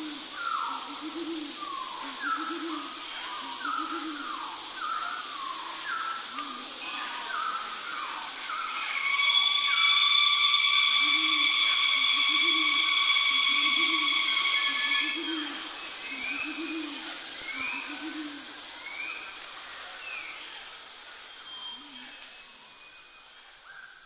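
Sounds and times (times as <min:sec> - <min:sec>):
thin steady whine: 0:00.0 - 0:23.7
buzzing insect drone: 0:00.0 - 0:24.0
low hooting calls: 0:07.2 - 0:18.6.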